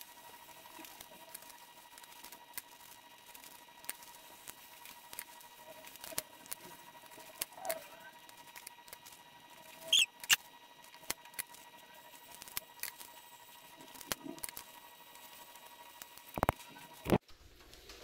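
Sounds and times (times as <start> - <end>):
high squeak: 9.9 - 10.4
small clicks and taps: 16.0 - 17.2.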